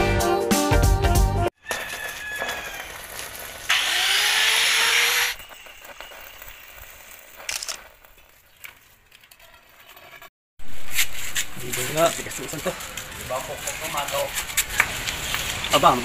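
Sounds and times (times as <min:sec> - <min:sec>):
welding arc hissing: 0:03.1 - 0:07.5
scattered clicks: 0:07.4 - 0:07.9.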